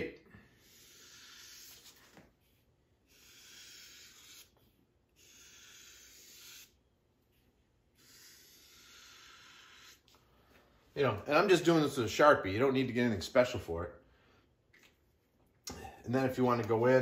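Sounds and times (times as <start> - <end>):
marker scratching on board: 0.6 - 2.2, 3.1 - 6.8, 8.0 - 10.1.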